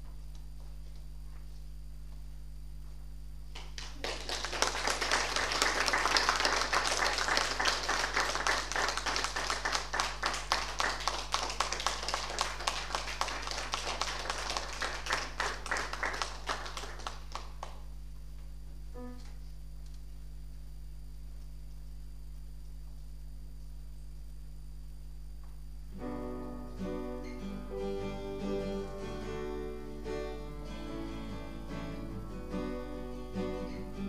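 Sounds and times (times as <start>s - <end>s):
audience applauding: 3.5s - 17.9s.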